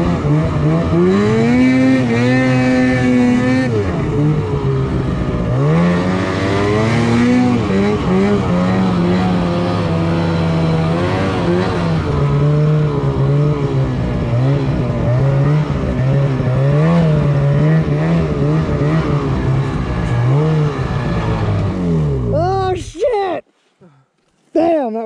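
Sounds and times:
snowmobile engine revving: 0.0s - 23.2s.

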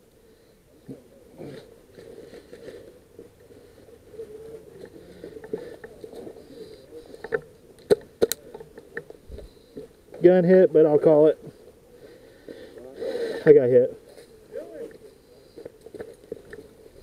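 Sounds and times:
branches snapping: 7.3s - 8.7s.

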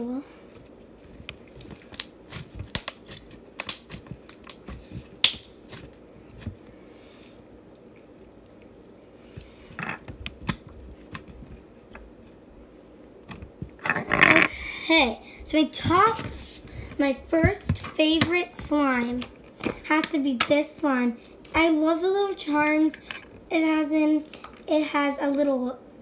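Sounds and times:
sticky slime clicks and pops: 1.9s - 4.6s.

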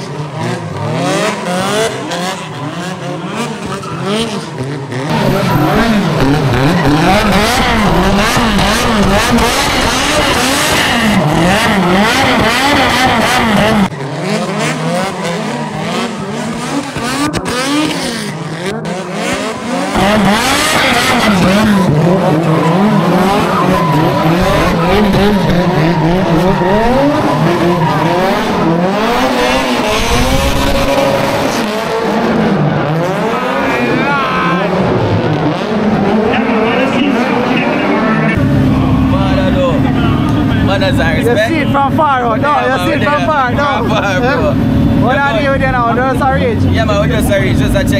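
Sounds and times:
car engine revving hard: 0.0s - 47.9s
tyre squeal: 19.9s - 31.1s.

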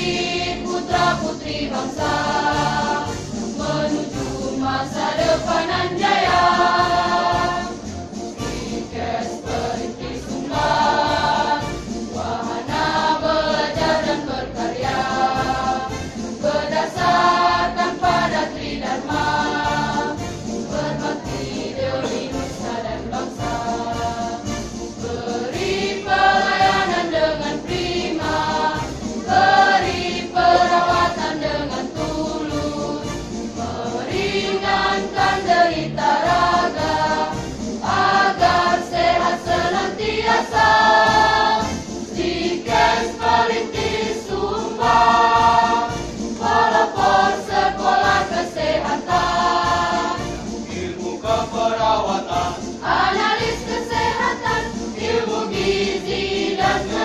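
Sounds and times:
women's choir singing: 0.0s - 57.0s.

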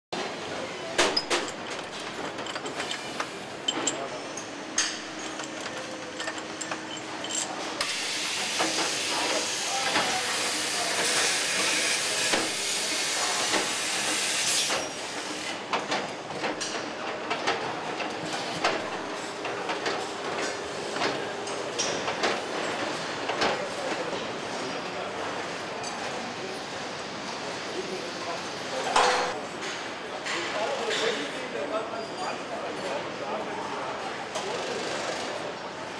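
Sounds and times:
metal parts and tools clinking: 1.0s - 8.0s.

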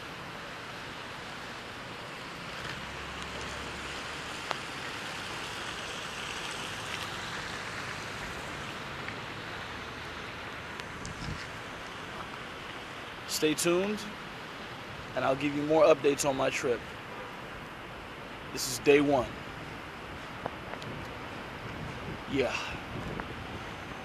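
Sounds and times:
traffic hissing on wet roads: 0.0s - 24.0s.

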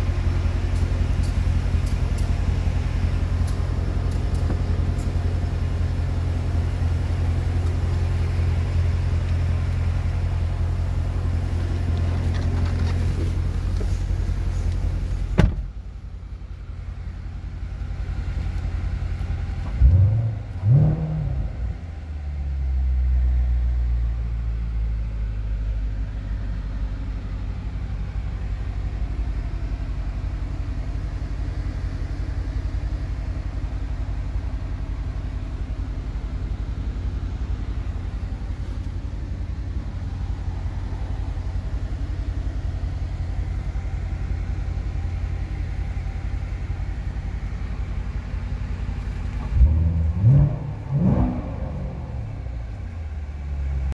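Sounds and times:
car engine idling: 0.0s - 53.9s
sharp thump: 15.3s - 15.7s
engine revving: 19.6s - 21.9s, 49.1s - 52.8s.

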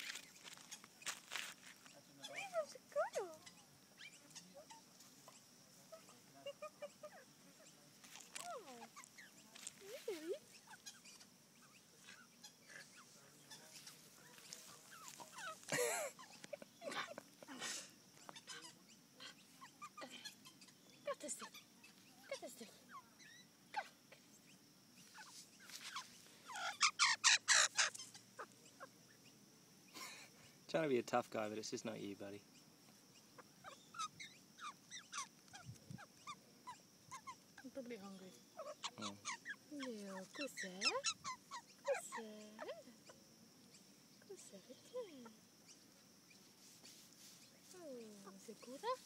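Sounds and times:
magpie calling: 10.1s - 13.0s, 25.1s - 29.0s, 33.3s - 43.2s.

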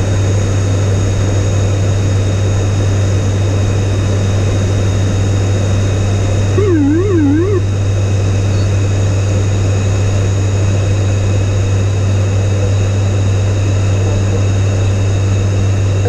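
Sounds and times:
turboprop engines droning: 0.0s - 16.0s
warbling tone: 6.6s - 7.6s.

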